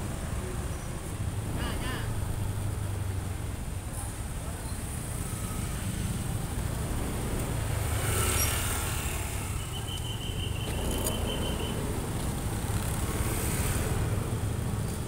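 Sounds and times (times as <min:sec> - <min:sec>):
street traffic: 0:00.0 - 0:15.0
motor scooters riding past: 0:04.5 - 0:15.0.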